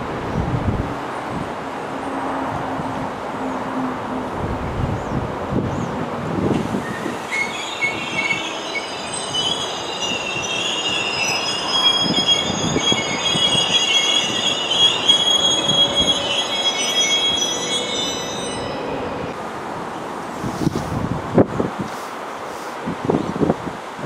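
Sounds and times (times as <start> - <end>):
train wheels squealing: 6.7 - 19.4.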